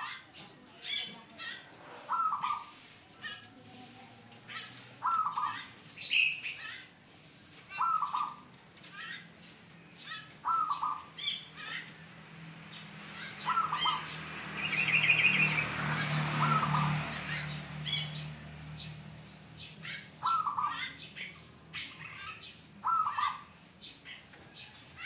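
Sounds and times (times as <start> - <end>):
small birds chirping: 0.0 - 25.0
dove cooing: 2.0 - 2.8, 5.0 - 5.8, 7.8 - 8.5, 10.1 - 11.8, 13.3 - 14.2, 15.0 - 18.1, 19.9 - 21.1, 21.8 - 23.6
bird trill: 4.5 - 6.8, 7.7 - 8.4, 9.9 - 12.1, 13.0 - 18.3, 19.4 - 25.0.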